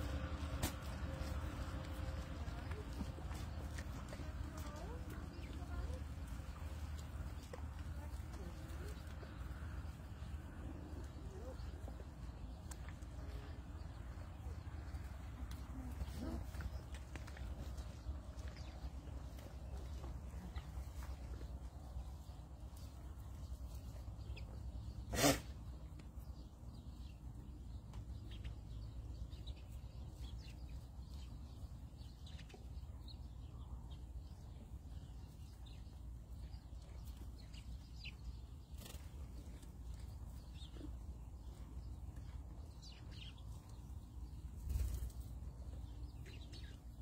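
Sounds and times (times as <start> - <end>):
alpacas crunching grain: 0.0 - 23.9.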